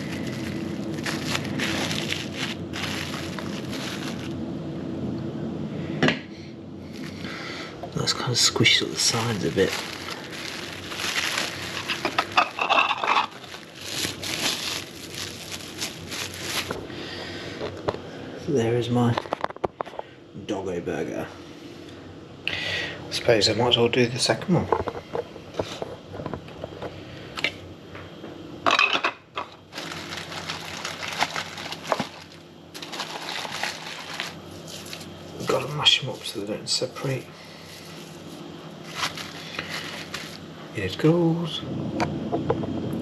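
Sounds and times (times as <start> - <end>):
cling film crinkling: 0.0 - 4.4, 8.9 - 16.9, 29.7 - 36.5, 37.7 - 40.5.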